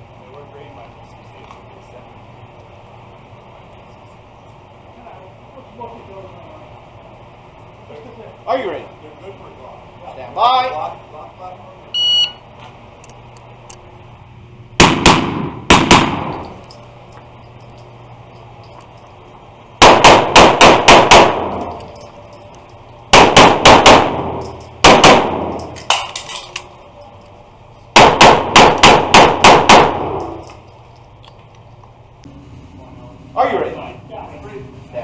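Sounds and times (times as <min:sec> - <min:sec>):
pistol shots echoing: 0:14.8 - 0:16.6, 0:19.8 - 0:21.9, 0:23.1 - 0:26.1, 0:27.9 - 0:30.4.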